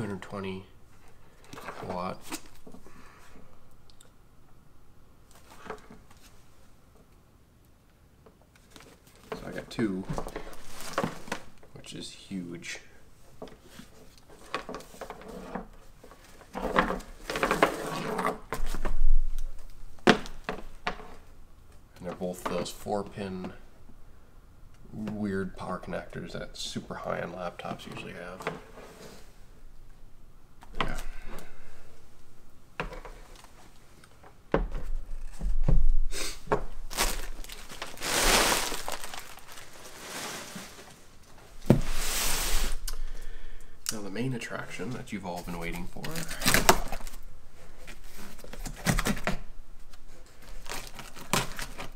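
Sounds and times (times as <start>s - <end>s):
packaging rustling: 8.6s - 11.6s, 36.7s - 42.8s, 45.7s - 51.9s
packaging knocks and thunks: 36.5s - 39.8s.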